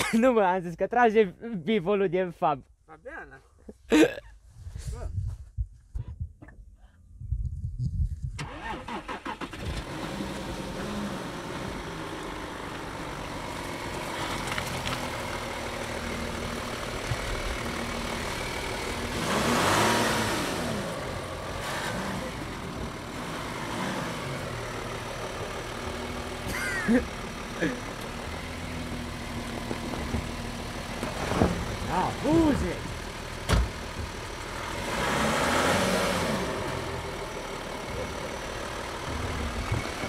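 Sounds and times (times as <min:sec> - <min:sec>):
car engine starting: 0:08.3 - 0:40.0
car engine running and revving: 0:08.4 - 0:40.0.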